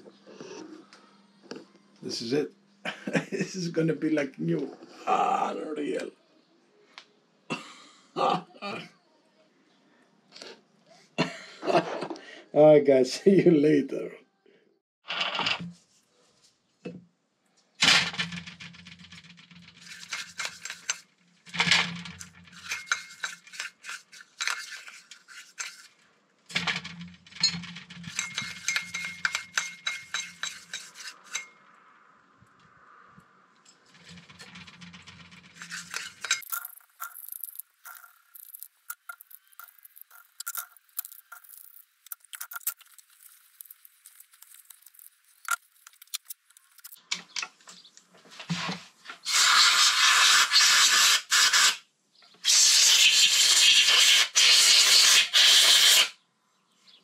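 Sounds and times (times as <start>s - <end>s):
metal part clinking against glass jar: 19.7s - 23.7s, 26.5s - 31.6s, 34.0s - 47.5s
compressed air blow gun hiss: 49.3s - 51.8s, 52.4s - 56.1s.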